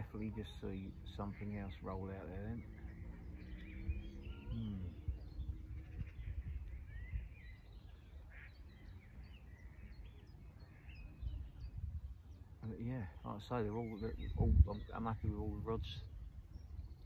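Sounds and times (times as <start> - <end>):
low rumble: 0.0 - 8.1
small birds chirping: 0.0 - 17.0.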